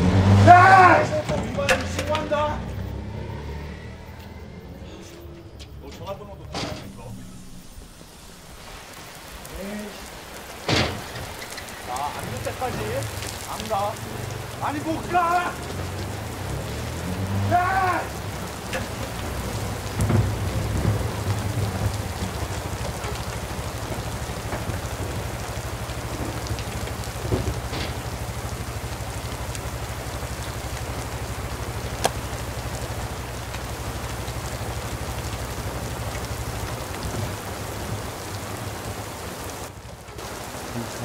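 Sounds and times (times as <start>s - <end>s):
rain hiss: 0.0s - 41.0s
low rumble: 1.1s - 11.4s.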